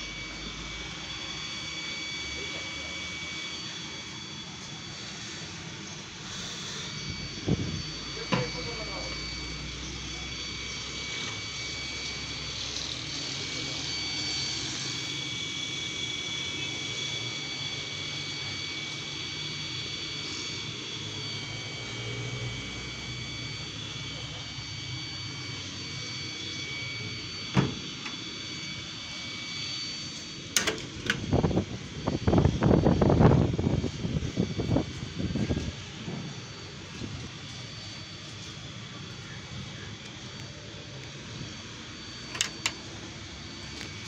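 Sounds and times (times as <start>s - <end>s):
low hum: 0.0s - 15.4s
faint high-pitched whining tones: 0.0s - 44.0s
mechanical drone and hiss: 0.0s - 44.0s.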